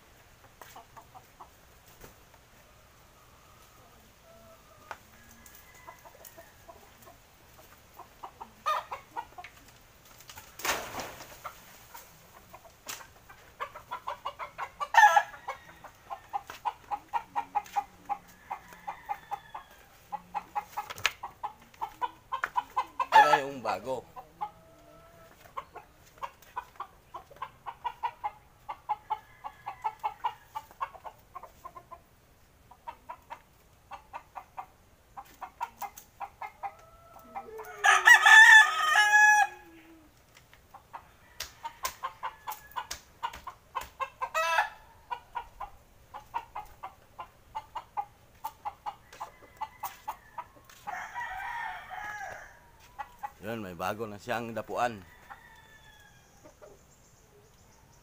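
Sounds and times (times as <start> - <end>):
chickens clucking: 0.0 - 38.4, 39.1 - 51.0, 51.6 - 58.0
rooster crowing: 3.0 - 6.9, 14.8 - 16.6, 17.6 - 20.1, 28.9 - 30.6, 36.6 - 39.8, 41.1 - 42.9, 44.3 - 44.8, 49.0 - 53.1, 54.9 - 56.5.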